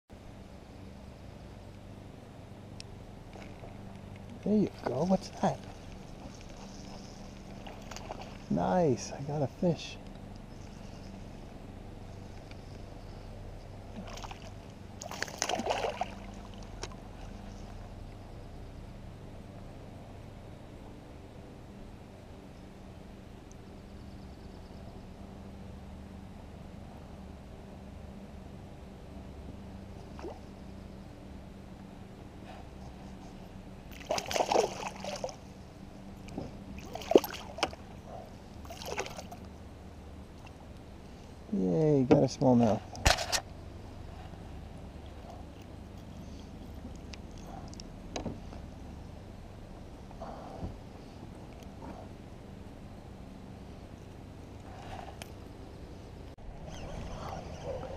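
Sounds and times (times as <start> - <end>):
steady low hum: 0.1 - 57.9
water sloshing around a kayak: 3.1 - 18.4, 32.6 - 41.4, 53.6 - 57.9
fish splashing in water: 5.6 - 8.5, 13.9 - 17.4, 33.9 - 35.5, 36.8 - 37.9, 38.6 - 39.4.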